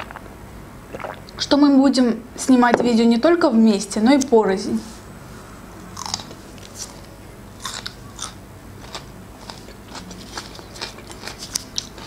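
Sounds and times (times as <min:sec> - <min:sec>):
chewing crisp pepper: 0:06.0 - 0:12.0.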